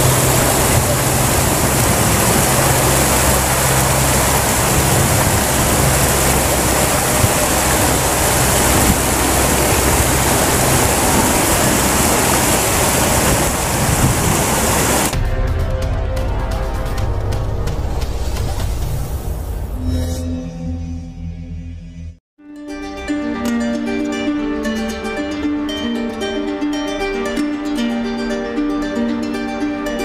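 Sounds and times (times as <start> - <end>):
music: 0.0 - 12.4, 15.1 - 30.0
low steady hum: 0.0 - 15.1
river water flowing: 0.0 - 15.2, 22.8 - 30.0.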